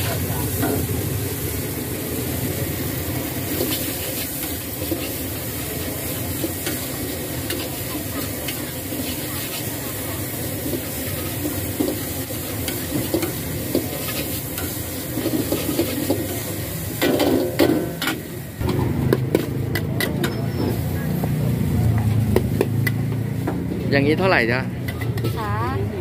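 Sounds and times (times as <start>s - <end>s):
spatula scraping wok: 0.0s - 23.9s, 24.7s - 26.0s
noodles sizzling: 0.0s - 26.0s
spatula clanking against wok: 17.0s - 20.7s.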